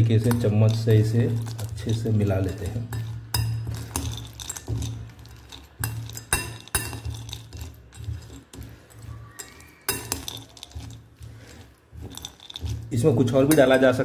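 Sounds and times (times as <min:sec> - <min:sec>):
metal spoon scraping ceramic bowl: 0:00.1 - 0:14.0.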